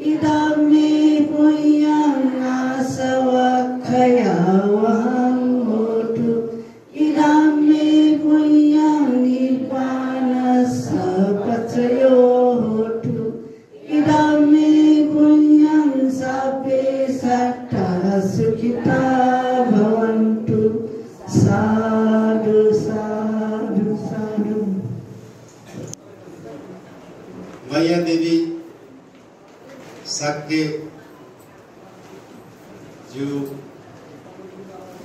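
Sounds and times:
congregation chanting in unison: 0:00.0 - 0:25.2.

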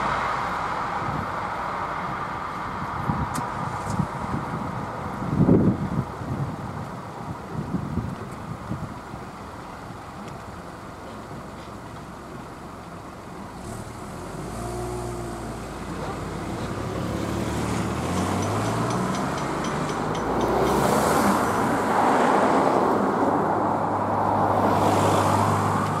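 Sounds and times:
cars passing: 0:00.0 - 0:06.6, 0:13.4 - 0:26.0.

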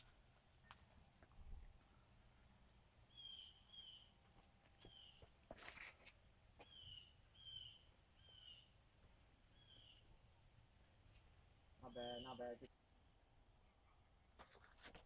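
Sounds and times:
bird chirping: 0:03.0 - 0:04.2, 0:04.8 - 0:05.3, 0:06.6 - 0:08.9, 0:09.5 - 0:10.2, 0:11.8 - 0:12.6.

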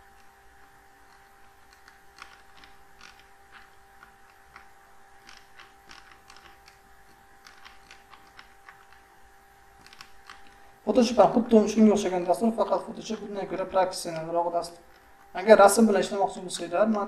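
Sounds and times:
computer mouse clicking: 0:00.0 - 0:09.1, 0:09.7 - 0:10.7
faint electrical hum: 0:00.0 - 0:17.0.

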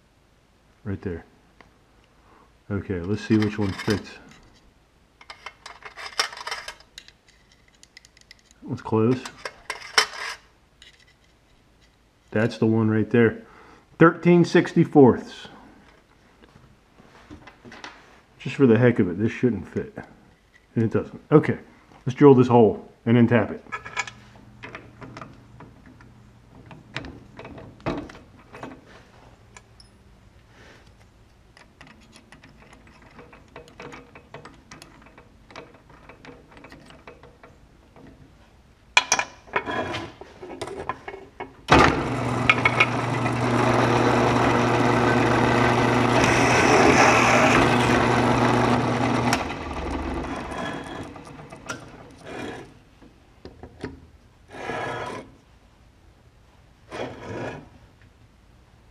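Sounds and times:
clicks and rattles in chuck: 0:05.2 - 0:11.3, 0:31.0 - 0:38.2
drill press drilling metal: 0:41.7 - 0:52.6
drill press winding down: 0:41.7 - 0:52.6.

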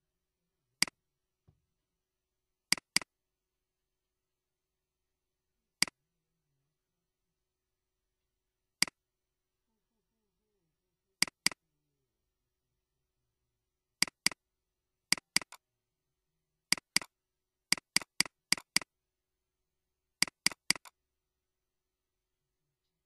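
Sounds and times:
mouse button clicking: 0:02.7 - 0:03.1, 0:15.1 - 0:15.6, 0:16.7 - 0:17.1.

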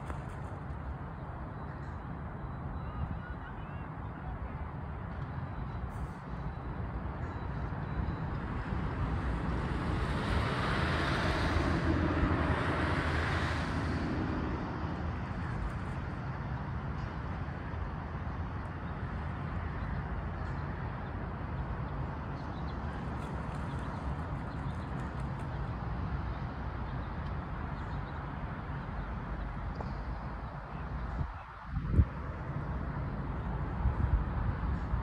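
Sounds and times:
traffic rumble: 0:00.0 - 0:35.0
vehicle passing: 0:08.7 - 0:15.6.

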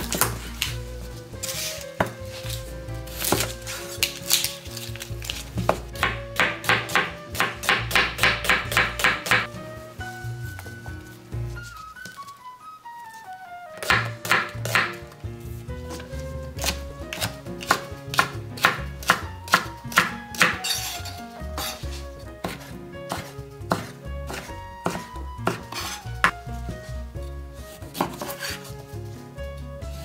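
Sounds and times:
soft background music: 0:00.0 - 0:30.0
knife chopping on cutting board: 0:03.1 - 0:03.5, 0:05.2 - 0:09.5, 0:13.8 - 0:15.0, 0:16.6 - 0:26.4, 0:28.0 - 0:28.6.

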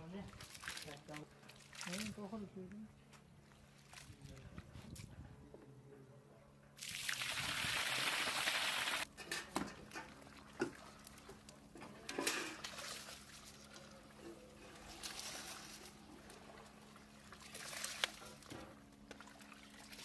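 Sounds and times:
water pouring onto concrete: 0:00.4 - 0:02.2, 0:06.8 - 0:09.0
knocks and splashes: 0:09.4 - 0:20.0.

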